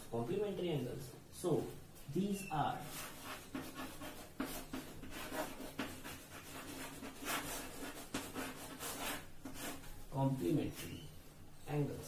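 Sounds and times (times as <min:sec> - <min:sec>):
chalk scratching on blackboard: 0:02.8 - 0:11.0.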